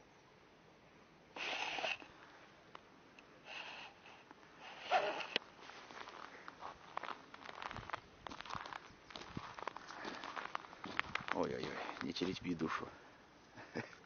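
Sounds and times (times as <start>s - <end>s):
person sniffing: 1.4s - 2.1s, 3.4s - 5.4s.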